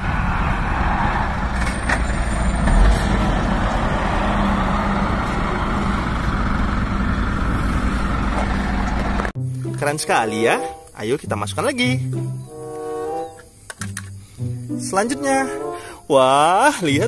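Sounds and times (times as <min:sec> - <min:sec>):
truck engine humming: 0:00.0 - 0:11.2
road noise: 0:00.0 - 0:17.0.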